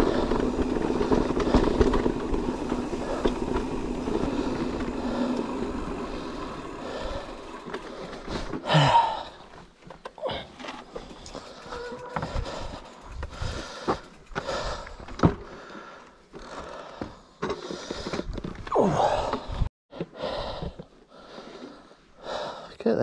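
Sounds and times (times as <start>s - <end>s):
bike rattling clatter: 0.0s - 16.6s
bike tyre noise: 0.0s - 22.5s.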